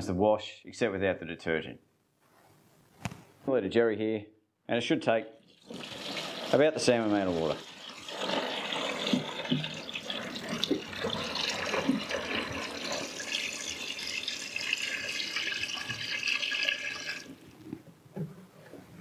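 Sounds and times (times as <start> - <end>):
water pouring into plastic tub: 5.4 - 17.6.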